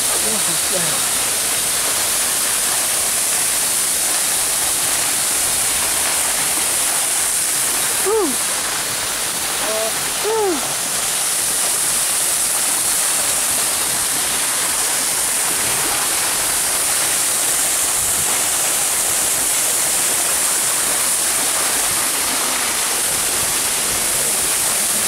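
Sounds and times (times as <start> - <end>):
waterfall rushing: 0.0 - 25.0
person calling out: 8.0 - 8.5, 9.6 - 10.8.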